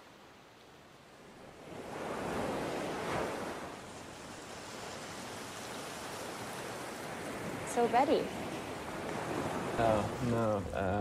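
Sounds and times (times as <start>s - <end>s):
ocean waves washing: 0.0s - 11.0s.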